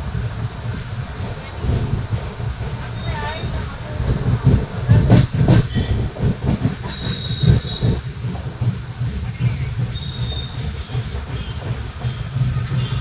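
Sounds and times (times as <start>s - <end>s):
train coaches rumbling on rails: 0.0s - 13.0s
high wheel squeal: 6.8s - 8.1s, 9.3s - 13.0s.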